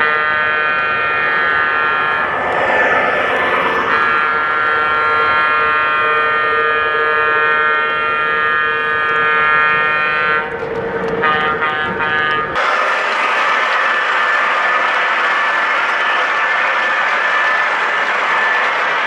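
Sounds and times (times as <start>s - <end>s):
model train horn: 0.0s - 2.2s, 4.1s - 10.5s, 11.2s - 12.6s, 14.0s - 19.0s.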